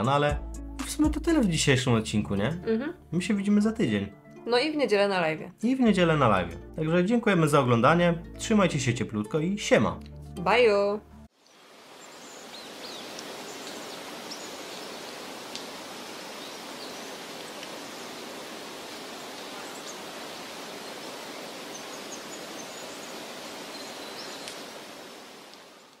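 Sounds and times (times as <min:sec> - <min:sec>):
rushing water: 0:11.3 - 0:26.0.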